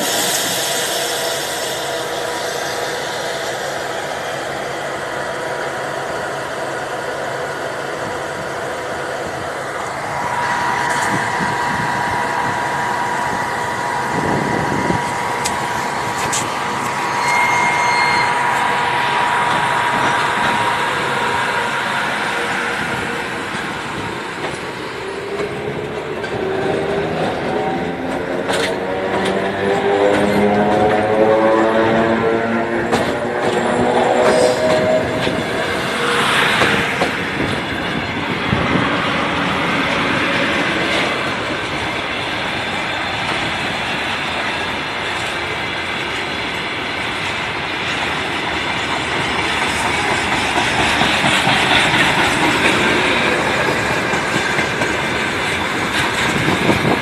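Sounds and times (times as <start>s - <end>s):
train wheels rumbling on rails: 0.0s - 57.0s
steady whine: 8.0s - 38.7s.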